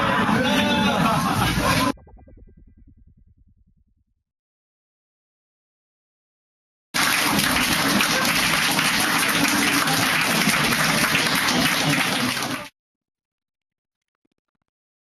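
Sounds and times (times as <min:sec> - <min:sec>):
voices: 0:00.0 - 0:02.0, 0:07.0 - 0:12.7
crowd applauding: 0:07.0 - 0:12.7.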